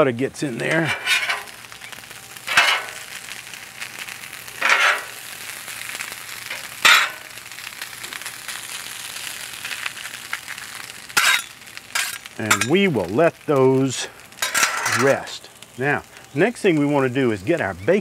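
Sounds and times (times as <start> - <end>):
potatoes sizzling on a griddle: 0.0 - 18.0
metal spatulas scraping griddle: 0.5 - 1.7, 2.5 - 3.1, 4.6 - 5.2, 6.4 - 7.3, 11.2 - 12.8, 14.4 - 15.2.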